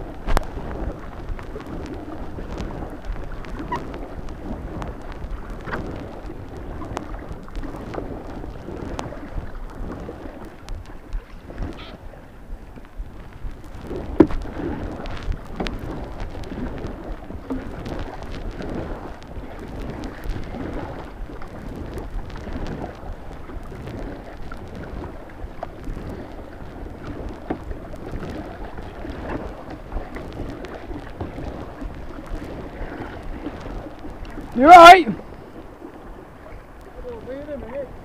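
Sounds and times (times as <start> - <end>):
small knocks and drips: 14.2 - 16.9
river water rushing: 31.0 - 38.0.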